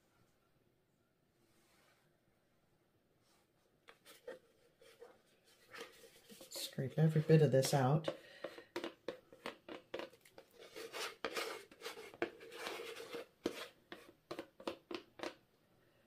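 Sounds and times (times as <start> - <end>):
stir stick scraping plastic cup: 3.9 - 15.4.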